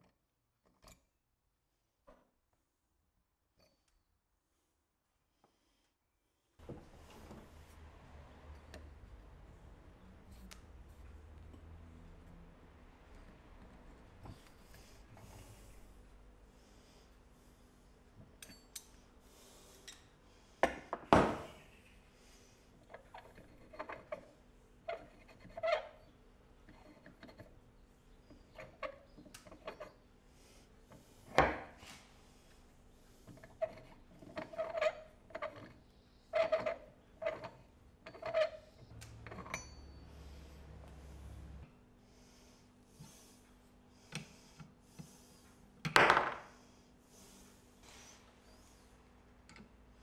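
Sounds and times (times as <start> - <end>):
metal parts clinking and knocking: 39.2 - 40.0.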